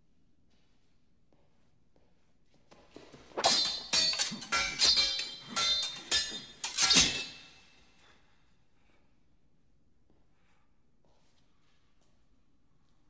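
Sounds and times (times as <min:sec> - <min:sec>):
sword blades clashing: 0:03.4 - 0:08.0.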